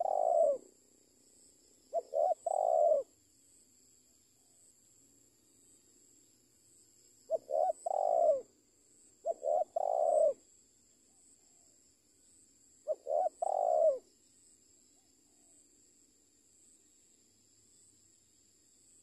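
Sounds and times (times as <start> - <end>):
dove cooing: 0.0 - 0.7, 1.9 - 3.1, 7.3 - 8.5, 9.2 - 10.4, 12.8 - 14.1.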